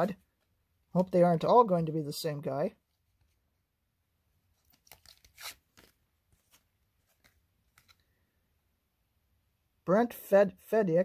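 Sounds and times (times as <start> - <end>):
paper rustling: 4.5 - 8.1.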